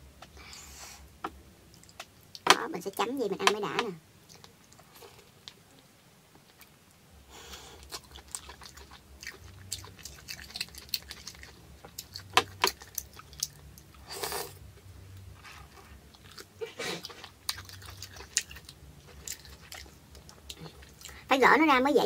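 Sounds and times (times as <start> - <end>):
wet mouth clicks and chewing: 1.7 - 2.4, 4.3 - 5.6, 7.8 - 14.0, 16.1 - 21.2.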